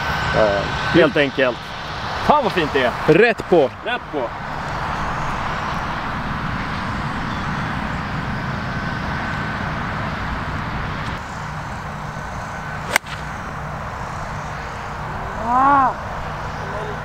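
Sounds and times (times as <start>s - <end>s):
golf club striking ball: 12.8s - 13.4s.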